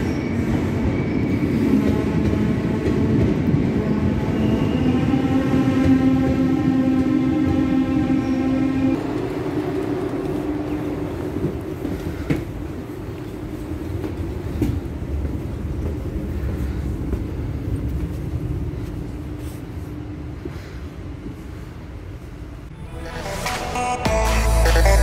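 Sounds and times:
train low rumble and hum: 0.0 - 24.1
music: 22.7 - 25.0.

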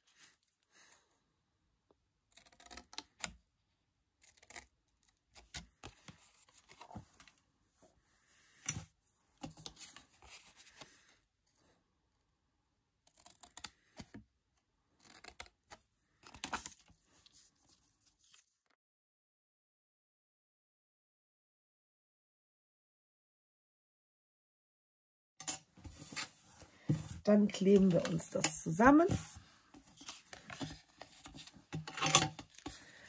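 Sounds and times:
scissors cutting cardstock: 13.1 - 14.2, 15.0 - 16.7.

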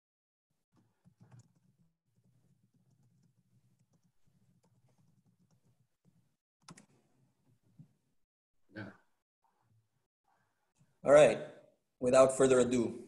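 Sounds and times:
computer mouse and keyboard clicks: 0.8 - 7.0.

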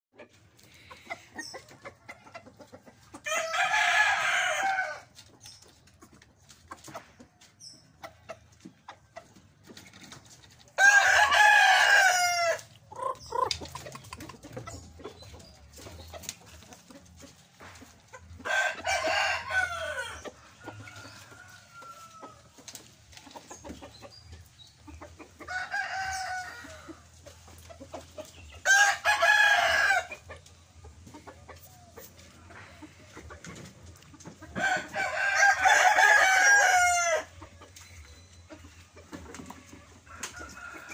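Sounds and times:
roosters crowing: 3.1 - 5.2, 10.7 - 13.8, 18.3 - 22.9, 25.4 - 27.2, 28.5 - 30.4, 34.4 - 37.5, 39.7 - 40.9
quiet clucking: 12.9 - 18.4.

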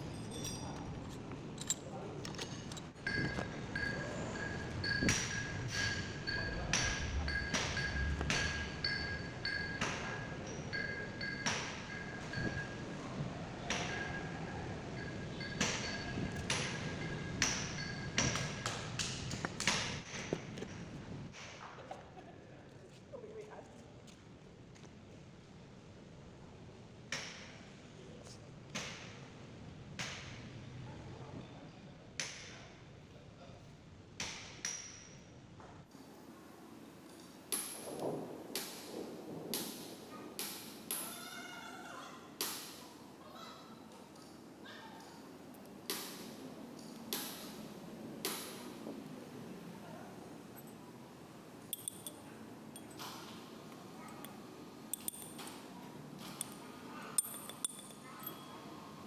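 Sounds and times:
metal parts clicking and knocking: 0.0 - 12.7, 51.7 - 53.4, 54.2 - 58.6.

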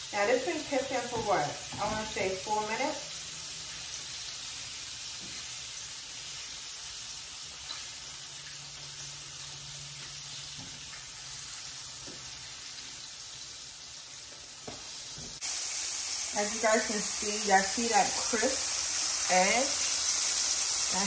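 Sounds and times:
chicken frying in oil: 0.0 - 21.0.

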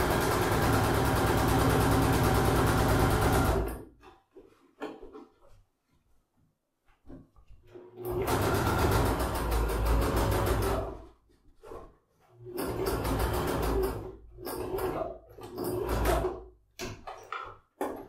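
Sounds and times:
electric sewing machine stitching: 0.0 - 3.9, 7.8 - 11.0, 12.4 - 16.4.

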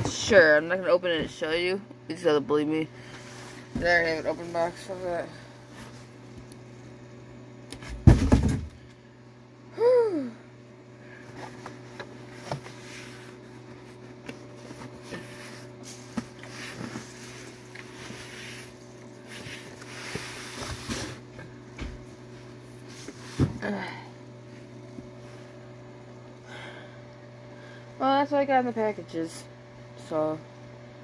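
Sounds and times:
steady low hum: 0.0 - 31.0
rustling and handling noises: 3.0 - 7.0, 11.2 - 26.4.

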